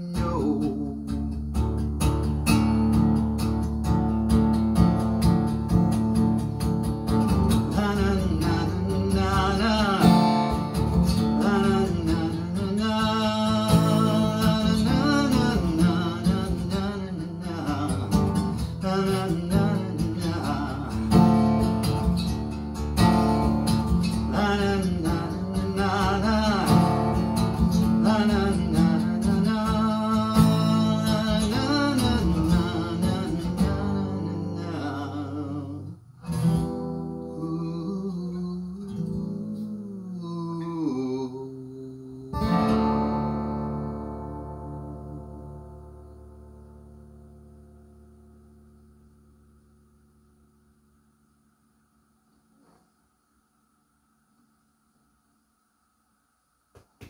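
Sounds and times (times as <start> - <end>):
man singing: 0.0 - 1.6, 7.3 - 21.8, 24.0 - 36.0, 36.9 - 45.8
acoustic guitar strummed and picked: 0.0 - 53.3.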